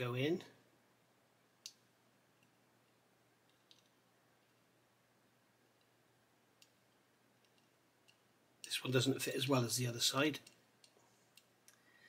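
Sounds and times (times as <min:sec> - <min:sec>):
tweezers clicking on plastic parts: 0:06.6 - 0:08.7, 0:10.4 - 0:11.8.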